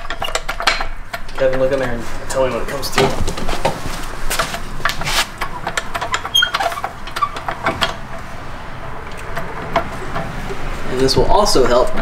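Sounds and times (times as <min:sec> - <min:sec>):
floor jack clicks and knocks: 0:00.0 - 0:02.0, 0:02.9 - 0:08.1
short squeak: 0:06.2 - 0:07.4.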